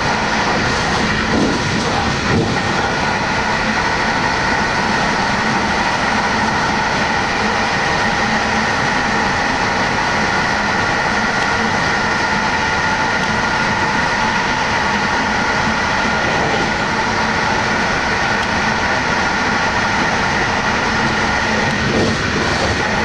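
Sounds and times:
high whine: 0.0s - 23.0s
train wheels rumbling on rail: 0.0s - 23.0s.

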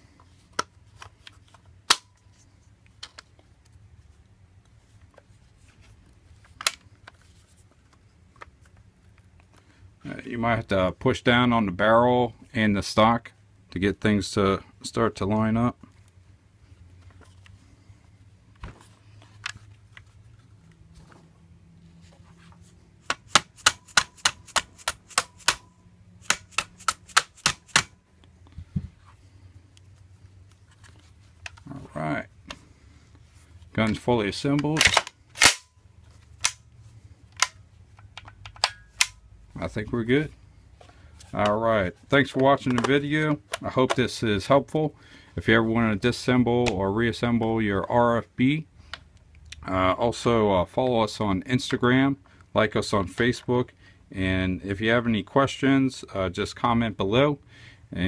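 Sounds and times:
small hammer tapping pins: 23.0s - 27.9s
rifle parts clicking and knocking: 23.0s - 28.0s, 33.9s - 35.7s, 36.4s - 36.6s, 37.3s - 39.2s.

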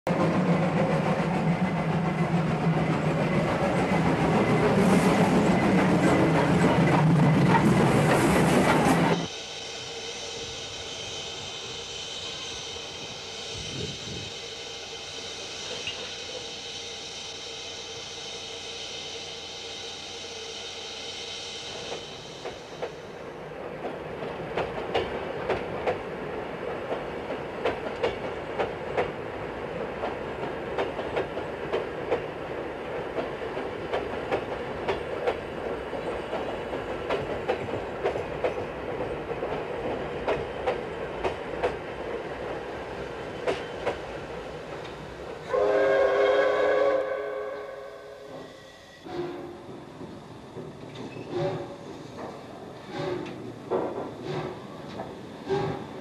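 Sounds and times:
train wheels clacking over rail joints: 0.1s - 9.3s, 21.8s - 23.0s, 23.7s - 45.5s, 49.1s - 56.0s.

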